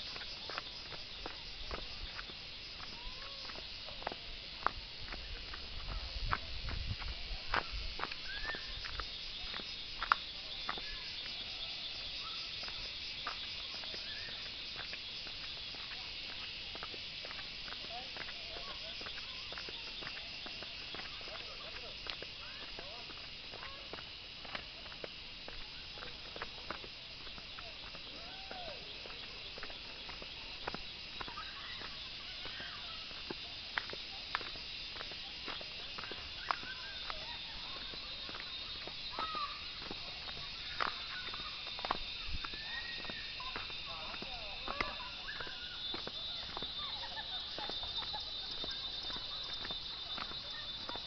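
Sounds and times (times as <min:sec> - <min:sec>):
footsteps on stone path: 0:00.0 - 0:51.0
insects shrilling: 0:00.0 - 0:51.0
faint whistled calls: 0:07.6 - 0:09.6, 0:10.5 - 0:14.5, 0:36.0 - 0:39.6, 0:40.5 - 0:51.0.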